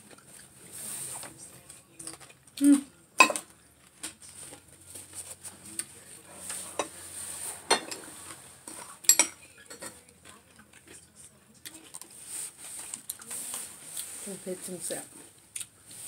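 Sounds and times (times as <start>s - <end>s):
metal spoon scraping ceramic bowls: 6.4s - 10.0s.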